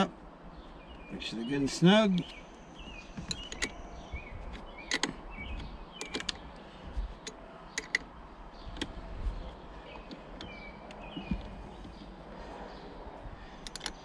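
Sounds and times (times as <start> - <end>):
wrench clicking on metal nuts: 4.9 - 6.4, 7.2 - 8.1, 13.6 - 14.0.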